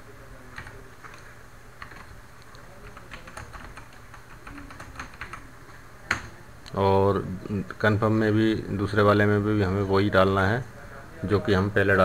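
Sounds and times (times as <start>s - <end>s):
computer keyboard keystrokes: 0.5s - 5.4s.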